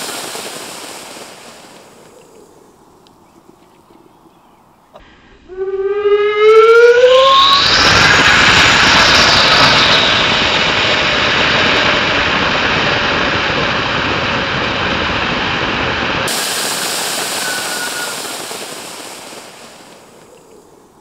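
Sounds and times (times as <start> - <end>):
rushing hiss of gas jetting: 0.0 - 2.1, 16.3 - 20.2.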